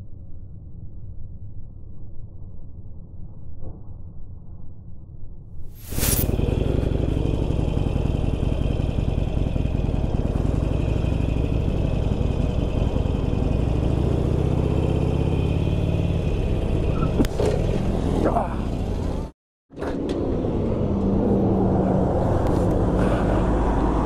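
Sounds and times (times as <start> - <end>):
motorcycle engine running: 6.2 - 19.3.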